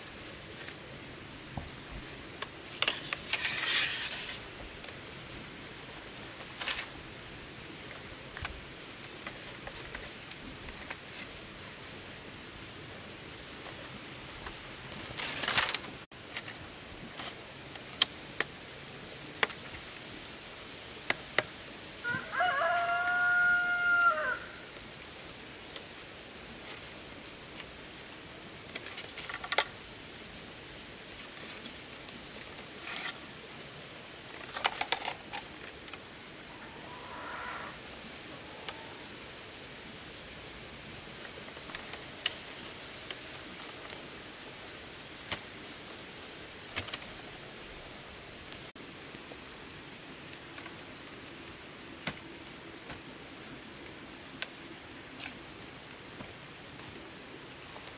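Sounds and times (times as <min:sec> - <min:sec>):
rooster crowing: 0:22.0 - 0:24.7, 0:36.5 - 0:39.1.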